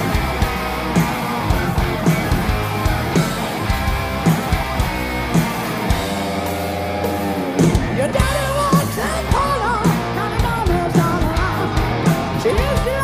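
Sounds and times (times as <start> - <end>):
hard rock band playing: 0.0 - 13.0
man singing lead vocal: 7.8 - 13.0.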